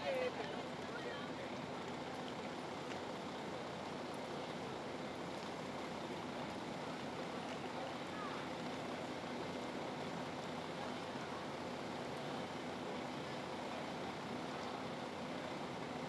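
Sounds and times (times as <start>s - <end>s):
faint voices of passengers: 0.0s - 2.4s, 6.4s - 15.8s.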